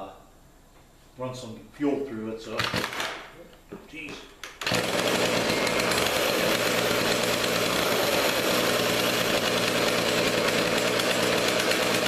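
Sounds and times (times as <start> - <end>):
chainsaw engine running: 4.6 - 12.0.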